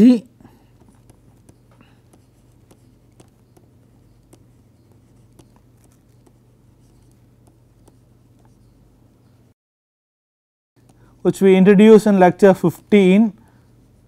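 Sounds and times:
low steady hum: 0:00.0 - 0:09.5, 0:10.8 - 0:14.0
stylus tapping tablet screen: 0:00.7 - 0:08.7.

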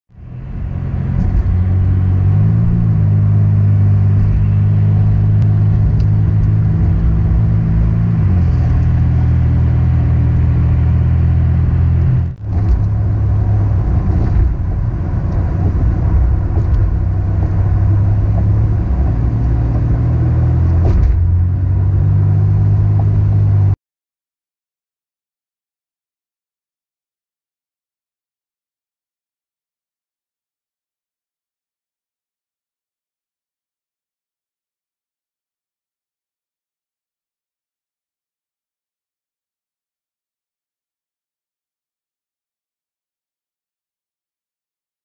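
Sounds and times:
car engine and tyres droning: 0:00.1 - 0:23.8.

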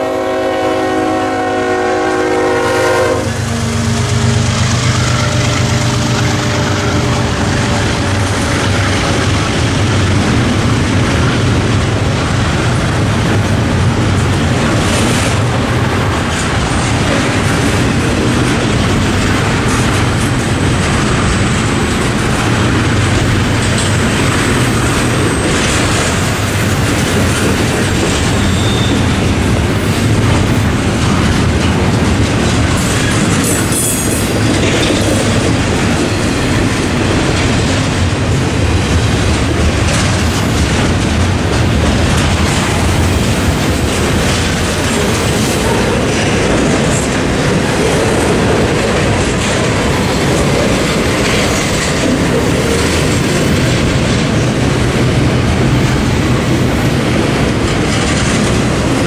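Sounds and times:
rail clicks: 0:00.0 - 0:59.0
train wheels rumbling on rail: 0:00.0 - 0:59.0
high-pitched wheel squeal: 0:28.3 - 0:29.2.

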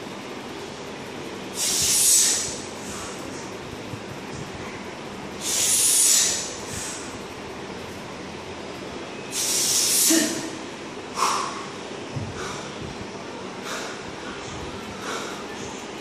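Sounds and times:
man hissing breath: 0:01.5 - 0:03.3, 0:05.4 - 0:07.2, 0:09.3 - 0:10.5, 0:11.2 - 0:11.7, 0:12.4 - 0:12.8.

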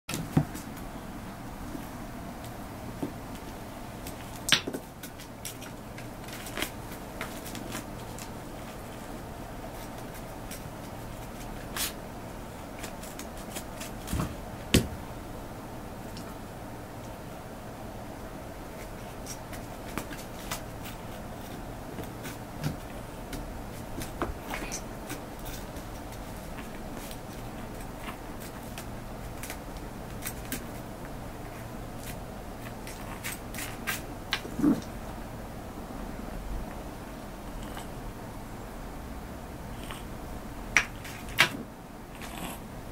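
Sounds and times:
kitten paws scrabbling on pad: 0:18.7 - 0:34.9.

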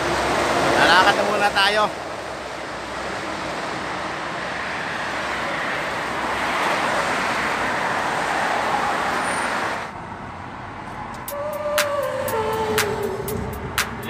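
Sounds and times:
cars passing on street: 0:00.0 - 0:14.0.

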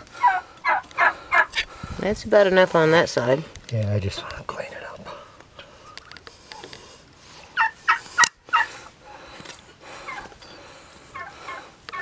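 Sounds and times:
hoof nippers snapping: 0:05.4 - 0:06.9, 0:07.9 - 0:08.4.

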